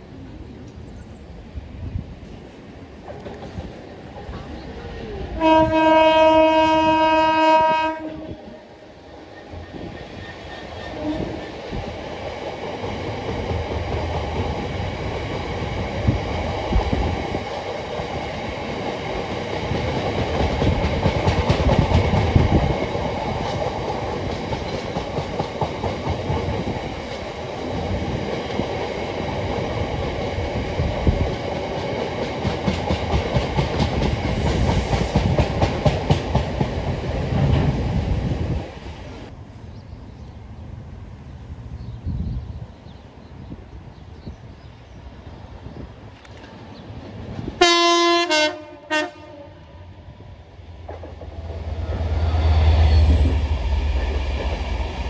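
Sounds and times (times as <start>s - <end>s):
freight train wheels clicking: 9.4s - 38.2s.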